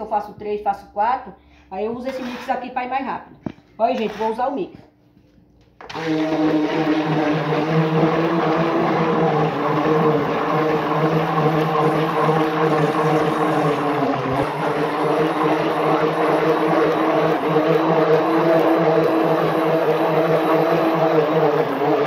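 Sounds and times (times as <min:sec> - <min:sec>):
stick blender motor humming: 0:05.8 - 0:22.0.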